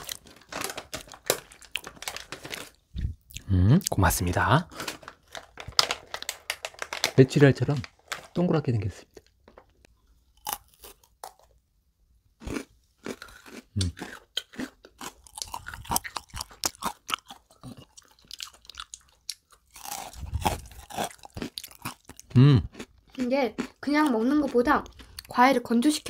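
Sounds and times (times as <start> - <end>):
crunching and chewing: 0.0 - 4.0, 9.1 - 11.6, 12.4 - 25.4.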